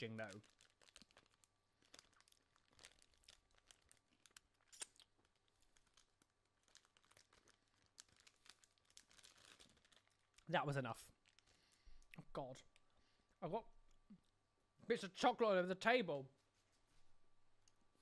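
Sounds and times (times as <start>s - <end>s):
plastic wrapper crinkling: 0.0s - 12.9s.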